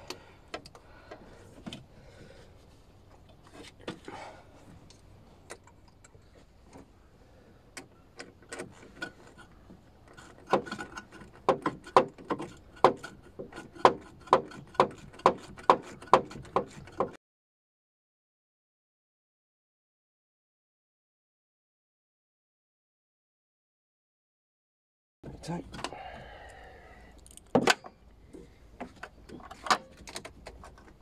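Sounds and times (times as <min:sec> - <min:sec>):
tool clicks and knocks: 0:10.1 - 0:17.2.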